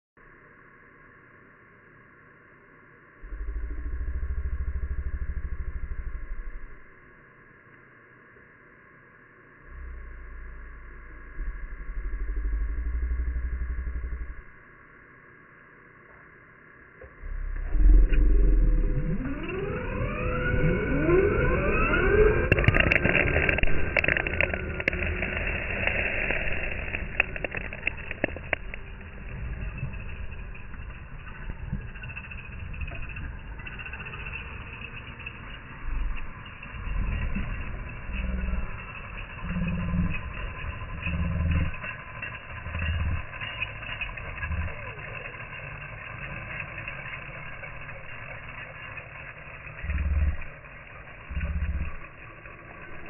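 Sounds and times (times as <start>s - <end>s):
rc trucks motors whining: 3.2s - 7.0s, 9.6s - 14.7s, 17.0s - 53.0s
flung dirt and pebbles clicking: 19.6s - 53.0s.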